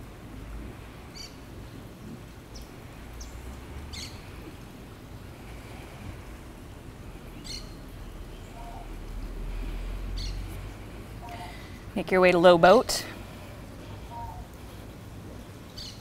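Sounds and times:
birds chirping: 1.1 - 5.6, 6.6 - 9.2, 10.1 - 12.8, 13.8 - 16.0.

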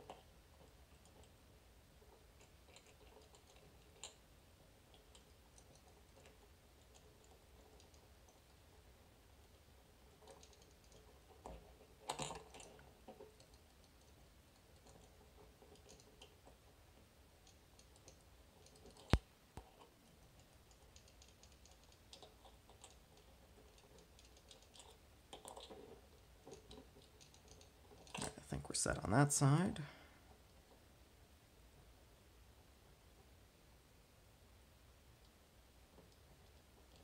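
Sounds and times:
lock pins clicking and rattling: 10.2 - 16.5.

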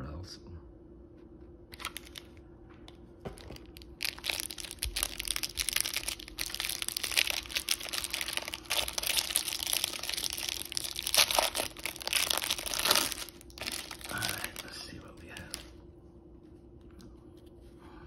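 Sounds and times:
cellophane crinkling and tearing: 1.7 - 2.4, 3.3 - 15.8.

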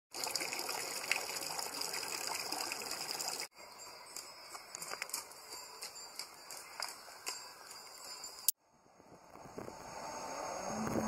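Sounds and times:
fountain water splashing into basin: 0.1 - 3.5
horse hooves on gravel: 4.1 - 8.4.

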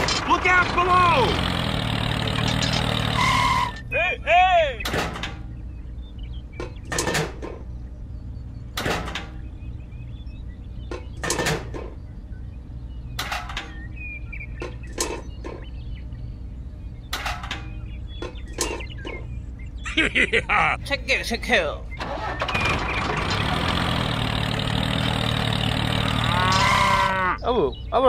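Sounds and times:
low hum: 4.8 - 21.2.

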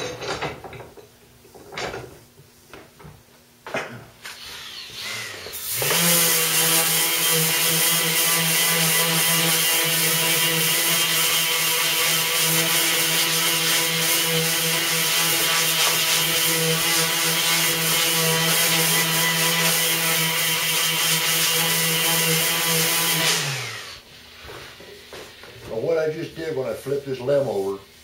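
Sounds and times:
electric sander whining: 4.3 - 24.0
sander winding down: 4.4 - 24.0.

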